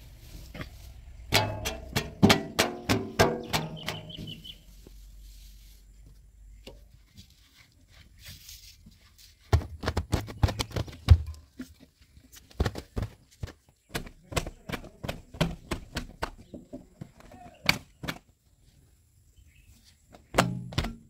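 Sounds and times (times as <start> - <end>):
knocks and thumps: 1.3 - 4.4, 9.4 - 11.6, 12.5 - 18.2, 20.2 - 21.0.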